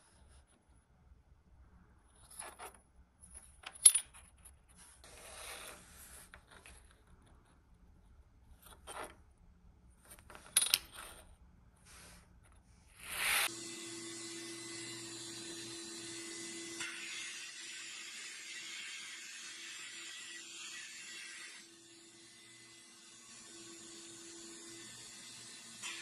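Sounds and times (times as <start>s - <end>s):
brief scraping rub: 4.7s - 6.8s, 11.8s - 13.5s.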